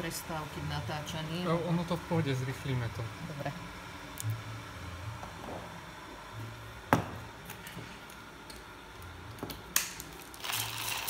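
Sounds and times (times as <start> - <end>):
beans crunching in hand grinder: 9.8 - 11.0.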